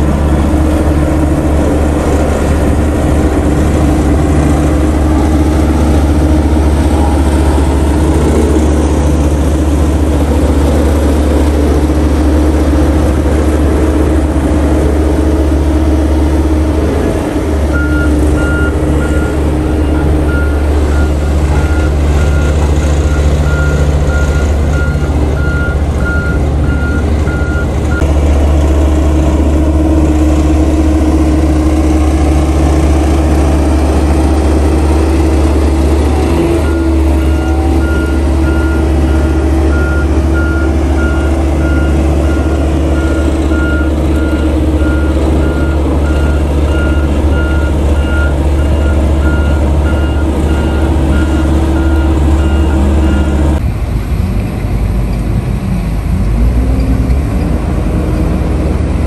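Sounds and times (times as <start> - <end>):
road roller rumbling: 0.0 - 59.0
reversing alarm beeping: 17.7 - 28.0, 36.2 - 53.6.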